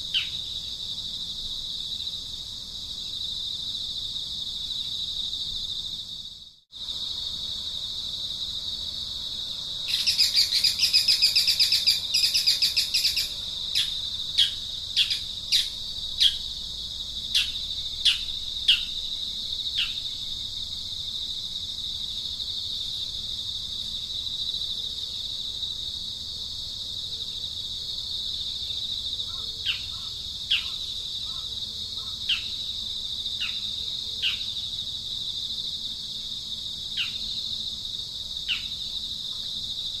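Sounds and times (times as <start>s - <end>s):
high-pitched insect drone: 0.0s - 26.2s.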